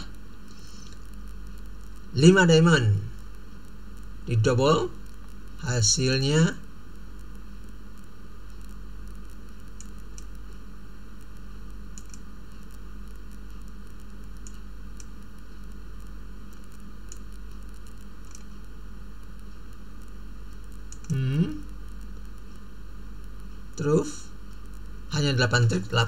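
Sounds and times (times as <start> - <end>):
low mains hum: 0.0 - 26.0
microphone hiss: 0.0 - 26.0
computer mouse clicks: 8.6 - 10.4, 11.9 - 15.3, 16.5 - 18.7, 20.0 - 21.2.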